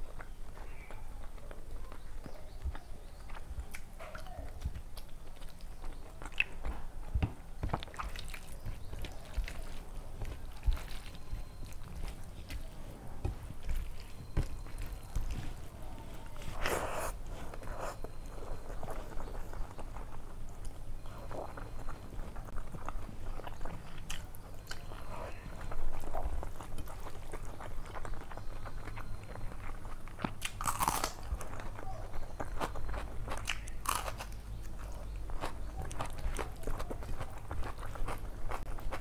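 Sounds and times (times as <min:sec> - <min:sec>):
chewing and lip smacks: 0:00.0 - 0:06.9, 0:07.7 - 0:12.7, 0:13.6 - 0:39.0
fingers mixing wet rice: 0:07.6 - 0:30.6.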